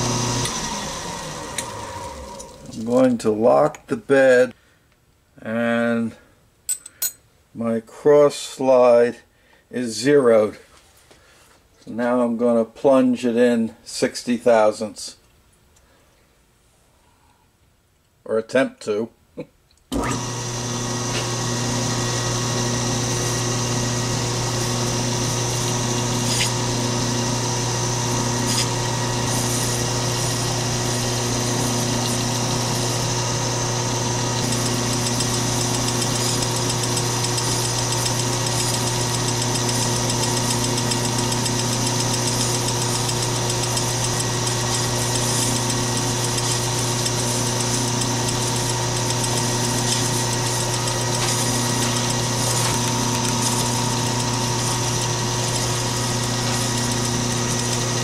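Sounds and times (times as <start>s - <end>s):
lathe motor humming and whining: 0.0s - 2.8s, 20.0s - 58.0s
tool cutting spinning metal: 0.0s - 3.1s, 19.9s - 58.0s.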